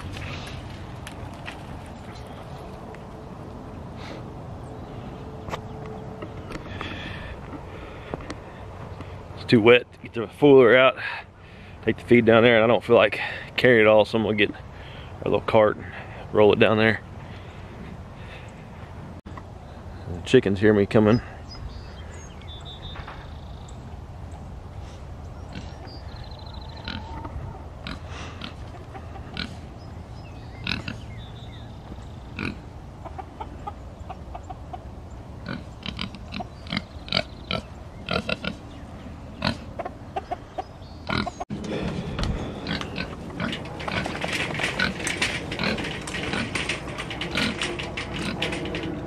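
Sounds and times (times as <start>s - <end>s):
metal cart rattling over ground: 0.0s - 2.9s, 41.5s - 49.0s
pig grunting and oinking: 35.4s - 38.6s, 41.0s - 46.7s.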